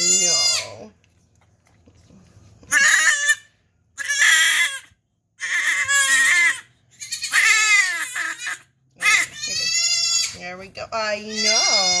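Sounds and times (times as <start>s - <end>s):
goat kid bleating: 0.0s - 0.9s, 2.7s - 10.4s, 11.2s - 12.0s.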